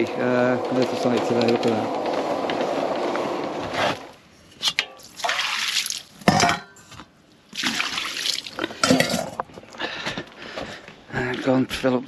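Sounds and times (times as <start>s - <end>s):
water splashing on tarmac: 5.0s - 6.2s, 7.5s - 8.6s.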